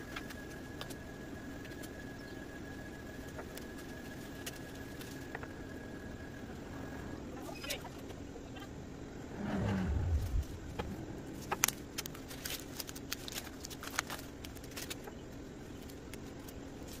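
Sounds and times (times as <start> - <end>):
faint steady hum: 0.0 - 17.0
brief low rumble: 9.2 - 11.4
stencil peeling crackles: 9.5 - 17.0.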